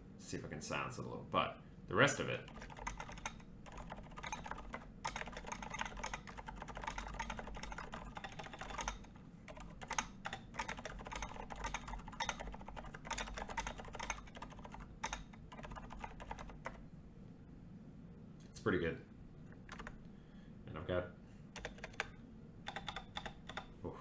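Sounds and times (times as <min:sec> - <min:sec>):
mechanical keyboard typing: 0:02.4 - 0:16.8, 0:19.7 - 0:20.0, 0:21.6 - 0:22.1, 0:22.7 - 0:23.7.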